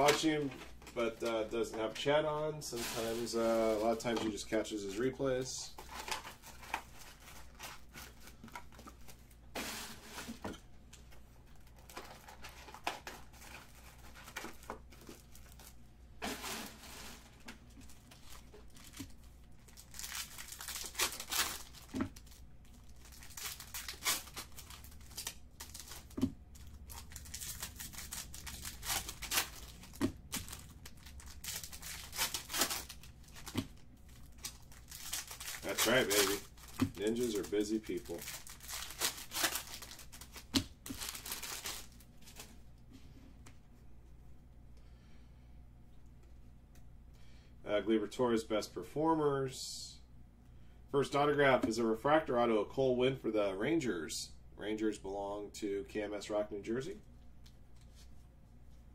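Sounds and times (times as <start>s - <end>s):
foil wrappers tearing and crinkling: 2.8s - 4.2s, 11.5s - 42.5s.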